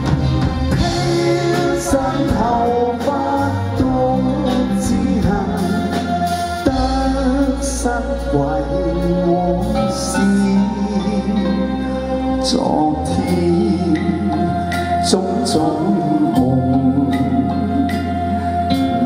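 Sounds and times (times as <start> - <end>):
live band playing: 0.0 - 19.0
person singing: 0.0 - 19.0.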